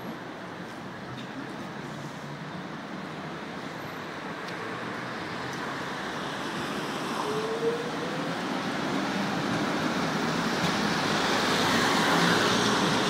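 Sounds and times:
tram rolling past: 5.7 - 13.0.

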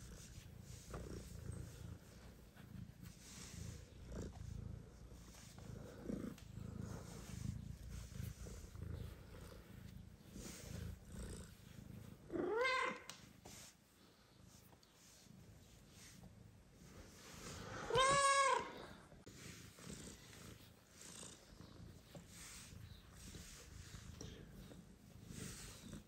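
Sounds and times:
cat purring: 0.0 - 17.9, 18.8 - 26.0
cat meowing: 12.4 - 13.1, 17.8 - 18.9.

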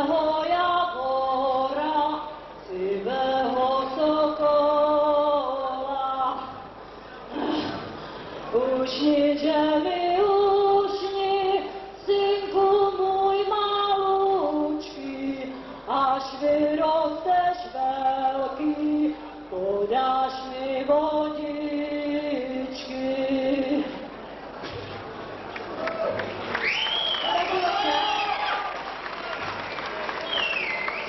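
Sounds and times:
woman singing slow melody: 0.0 - 6.7, 8.5 - 24.1.

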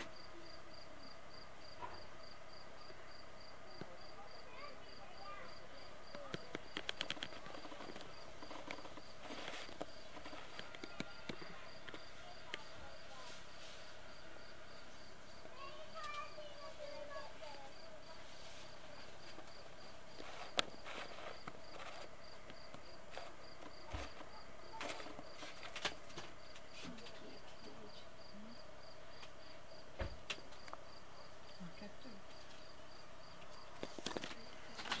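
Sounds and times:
insect chirping: 0.1 - 26.6, 27.5 - 35.0
sharp clicks: 6.1 - 8.8.

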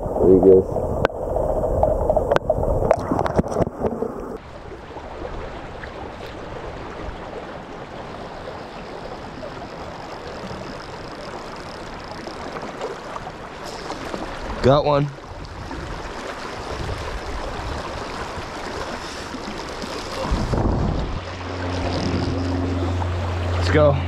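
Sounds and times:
creek water flowing: 0.0 - 24.0.

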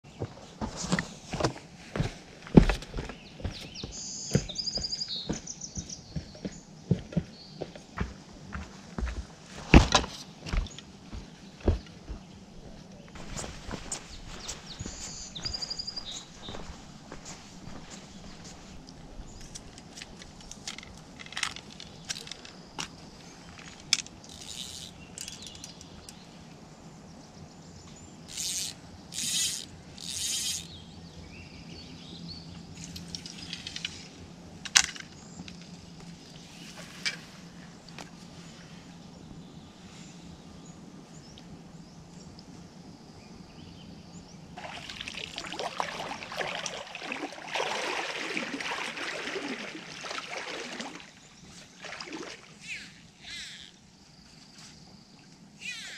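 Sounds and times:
fishing tackle clicks and rustles: 16.1 - 26.2, 28.3 - 30.8, 32.7 - 38.4
splashing of wading in water: 44.6 - 52.8.

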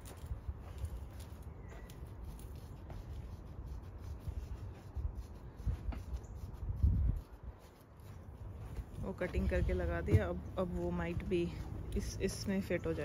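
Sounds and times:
knife scraping and cutting turf: 1.8 - 13.0.

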